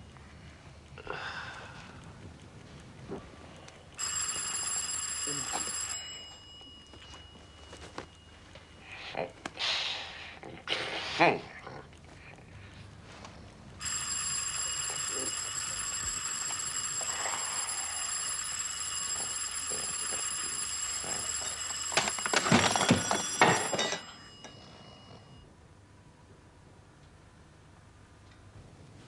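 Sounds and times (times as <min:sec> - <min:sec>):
alarm clock bell ringing: 0:04.0 - 0:09.0, 0:13.8 - 0:25.5.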